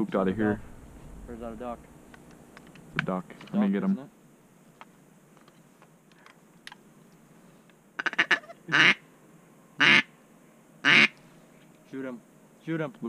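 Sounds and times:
duck call quacks: 8.0s - 9.0s, 9.8s - 10.1s, 10.8s - 11.2s
duck call short notes: 8.0s - 9.0s, 9.8s - 10.1s, 10.8s - 11.2s.

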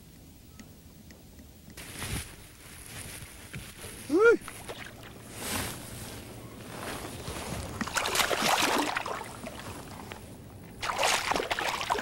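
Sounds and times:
fish splashing at water surface: 7.8s - 9.6s, 10.8s - 12.0s.

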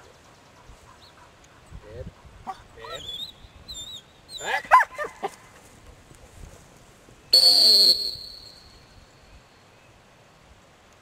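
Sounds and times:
dog barking: 4.4s - 5.3s
dog-training whistle blast: 7.3s - 8.8s.

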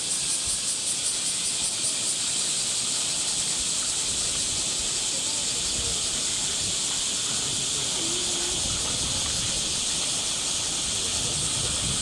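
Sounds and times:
cicada chorus hissing: 0.0s - 12.0s.

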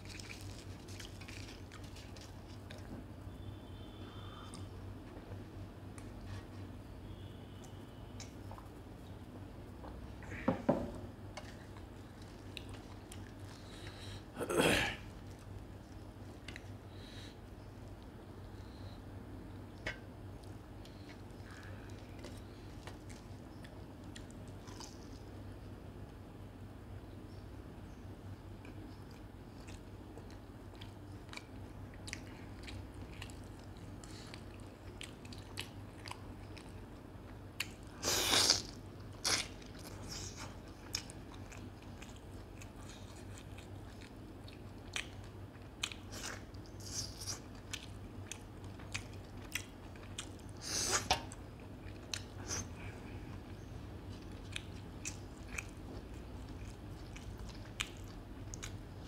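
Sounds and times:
chewing and biting: 0.0s - 2.9s, 28.6s - 59.0s.

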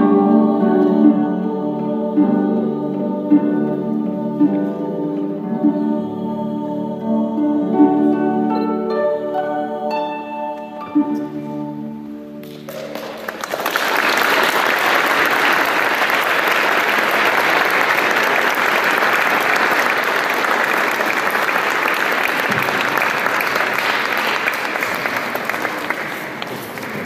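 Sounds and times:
audience applauding: 12.4s - 27.0s.

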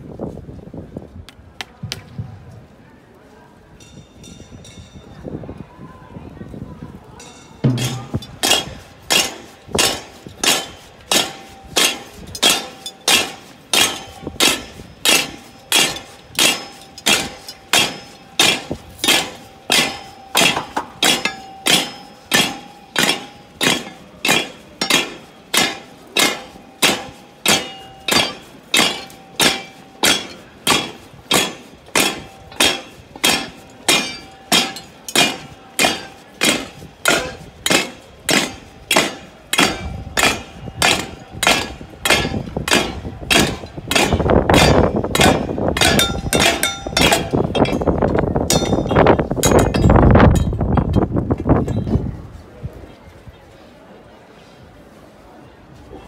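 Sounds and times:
rhythmic metallic clanking: 7.2s - 52.0s.

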